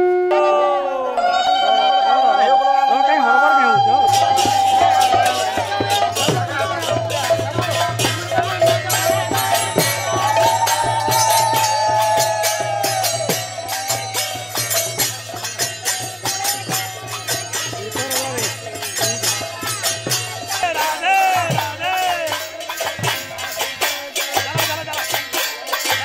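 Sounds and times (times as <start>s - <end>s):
person singing long wavering notes: 0.0s - 6.1s
hand cymbals clattering: 3.7s - 26.0s.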